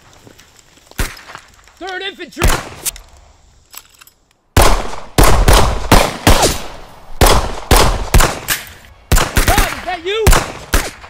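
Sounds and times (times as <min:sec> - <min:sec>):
rifle shots with echo: 0:04.6 - 0:11.0.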